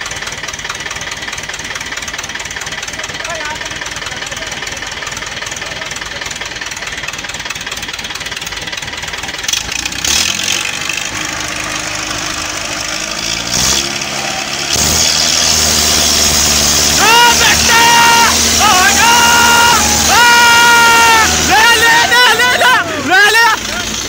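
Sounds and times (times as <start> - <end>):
tractor diesel engine revving: 0.0 - 24.0.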